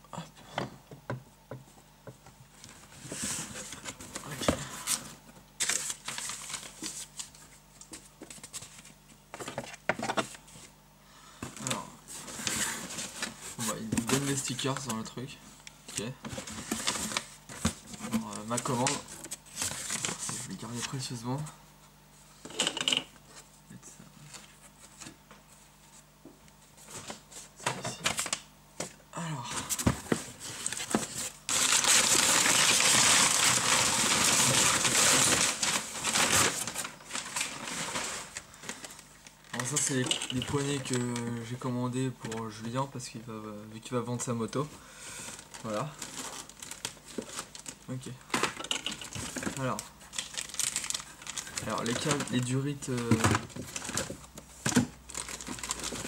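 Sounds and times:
paper rustling and crinkling: 0:02.6 - 0:10.7, 0:11.6 - 0:15.1, 0:16.0 - 0:21.1, 0:29.6 - 0:41.3, 0:44.6 - 0:56.0.

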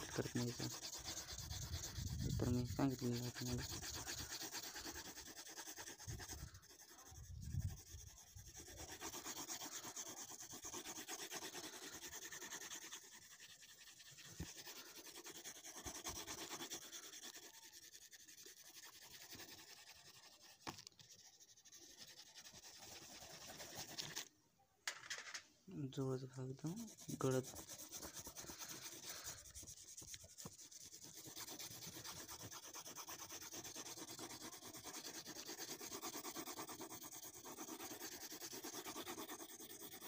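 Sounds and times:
pencil shading on paper: 0:00.0 - 0:24.3, 0:26.0 - 0:40.0.

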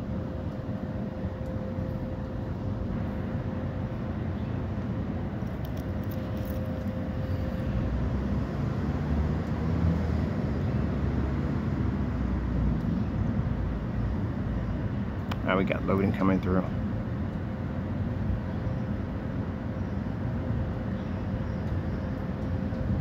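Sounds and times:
faint steady hum: 0:00.0 - 0:09.6
low rumble of road traffic: 0:00.0 - 0:23.0
vehicle approaching: 0:06.0 - 0:15.8.

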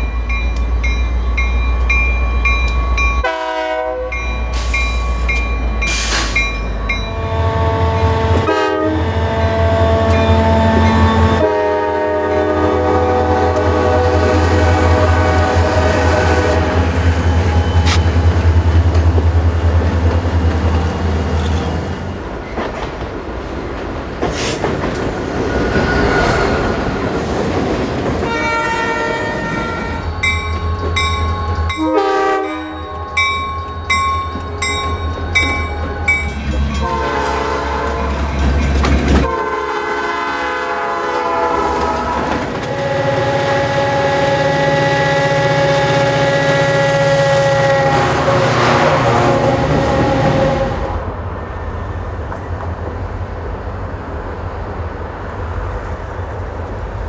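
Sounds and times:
air horn blasts: 0:03.2 - 0:04.2, 0:07.1 - 0:17.0, 0:28.2 - 0:30.1, 0:31.8 - 0:33.2, 0:36.8 - 0:38.1, 0:39.2 - 0:51.0
wheel and rail noise: 0:14.6 - 0:31.8, 0:32.4 - 0:39.6.

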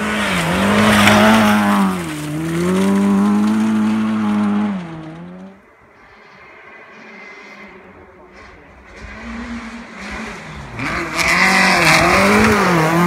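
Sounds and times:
tyres hissing on gravel: 0:00.0 - 0:05.4
rally car engine high revs: 0:00.0 - 0:05.6, 0:07.1 - 0:13.0.

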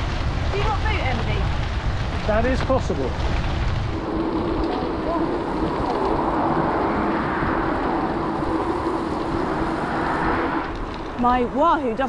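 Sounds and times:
bicycle tyres rolling on trail: 0:00.0 - 0:12.0
wind on microphone: 0:00.0 - 0:12.0.

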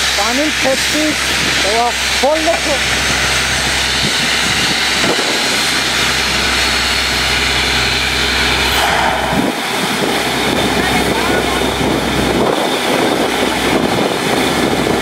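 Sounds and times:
wide hissing rush: 0:00.0 - 0:14.6
drilling rig engine drone: 0:00.0 - 0:15.0.

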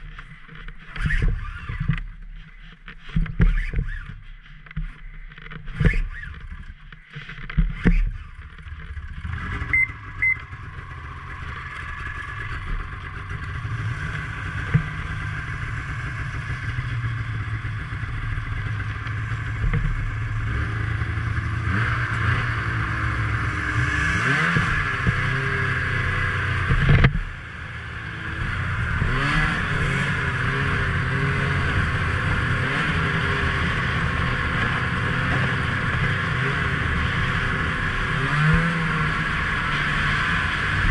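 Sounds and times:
knocks and clatter: 0:00.0 - 0:09.6, 0:10.4 - 0:16.0, 0:18.4 - 0:20.4, 0:26.6 - 0:27.3
snowmobile engine revving: 0:07.7 - 0:40.9.

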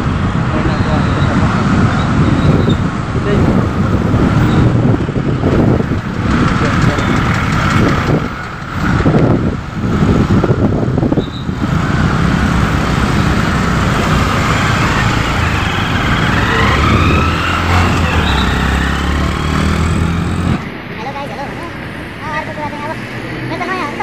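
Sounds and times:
car and motorcycle engines: 0:00.0 - 0:24.0
low engine drone: 0:11.6 - 0:20.9
rising whine: 0:11.7 - 0:20.7.

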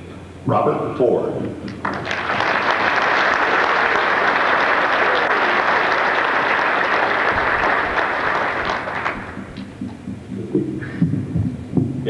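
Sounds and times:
audience applauding: 0:01.7 - 0:09.9.

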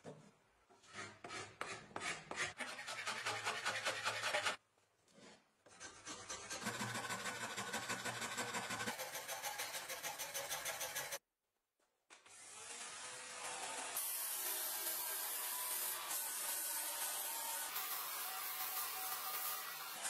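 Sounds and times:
hand file rasping wood: 0:00.8 - 0:04.6, 0:05.2 - 0:11.2.

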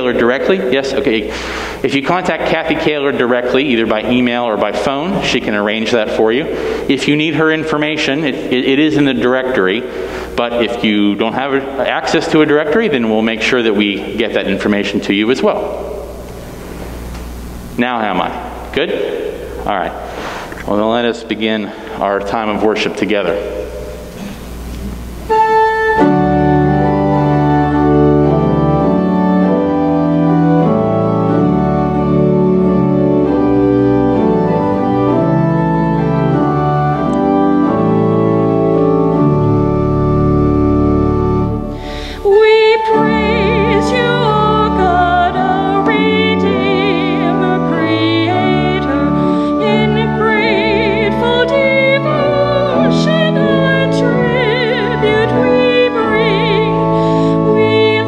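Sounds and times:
church organ chords: 0:00.0 - 0:58.0
woman singing with vibrato: 0:42.0 - 0:58.0.

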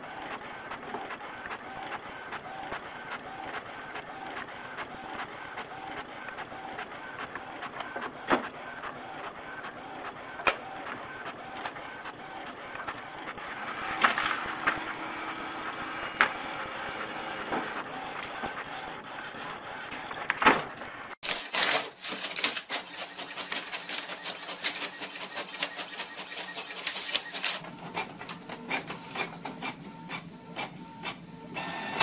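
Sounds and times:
fax machine paper feed whirring: 0:00.0 - 0:32.0.

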